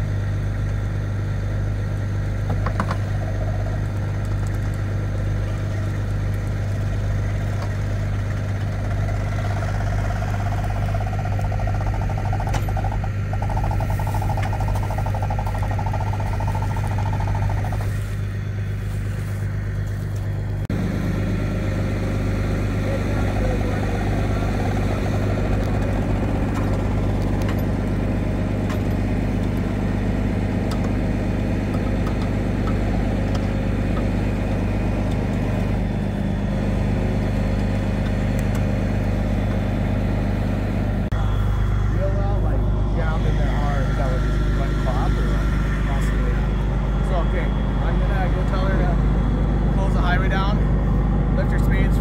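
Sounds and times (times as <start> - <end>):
diesel engine idling: 0.0 - 52.0.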